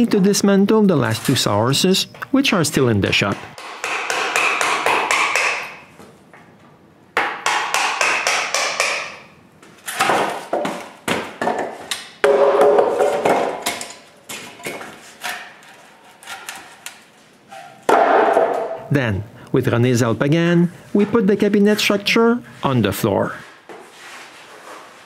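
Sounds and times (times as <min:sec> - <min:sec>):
wooden mallet knocking: 0:07.2 - 0:09.2.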